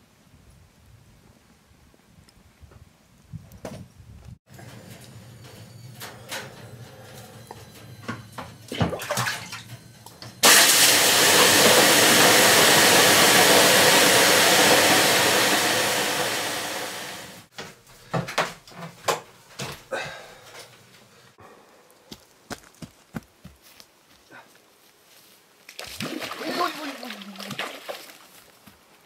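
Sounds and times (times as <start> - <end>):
loud hiss of steam: 10.4 - 17.5.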